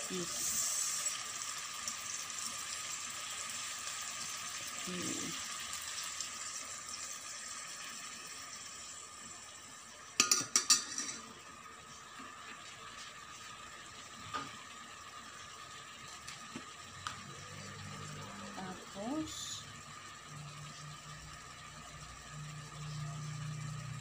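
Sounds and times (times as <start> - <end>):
metal spoon clinking in pot: 10.2 - 11.2.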